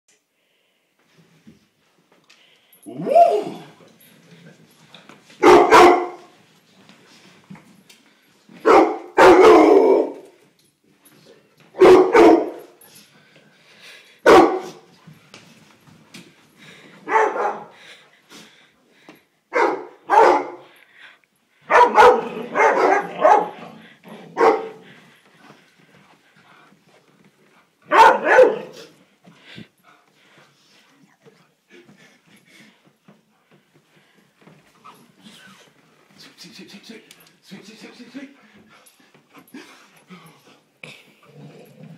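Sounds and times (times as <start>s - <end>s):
dog barking: 5.4s - 6.3s, 8.6s - 10.2s, 11.8s - 12.8s, 14.3s - 14.8s, 17.1s - 17.8s, 19.5s - 20.6s, 21.7s - 23.6s, 24.3s - 24.8s, 27.9s - 28.8s.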